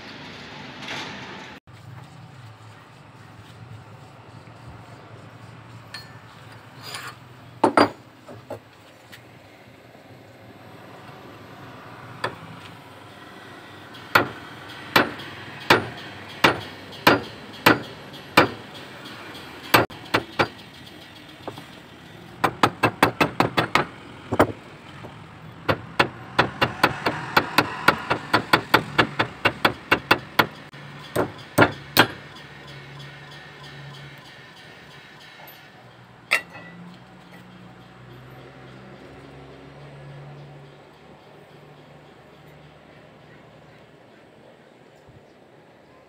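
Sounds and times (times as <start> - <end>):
steel blade striking metal nail: 14.1 - 18.6.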